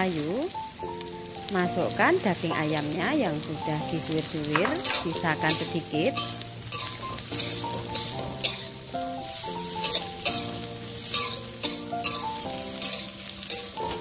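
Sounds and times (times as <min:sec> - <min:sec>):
oil sizzling: 0:00.0 - 0:14.0
soft background music: 0:00.0 - 0:14.0
metal spatula scraping a wok: 0:04.5 - 0:14.0.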